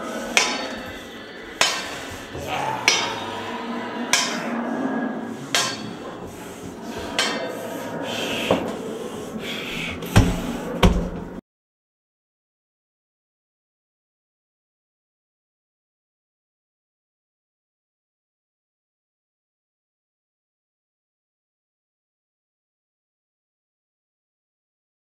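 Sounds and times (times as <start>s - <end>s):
heavy knocks: 9.8s - 11.4s.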